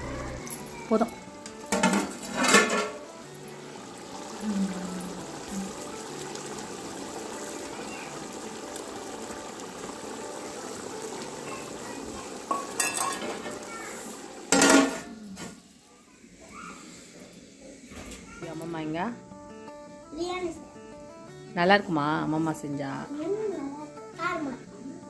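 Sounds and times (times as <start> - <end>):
metal lid clanging on pot: 1.7 - 3.0, 12.5 - 13.6, 14.5 - 15.1
liquid bubbling in a pot: 2.1 - 15.2.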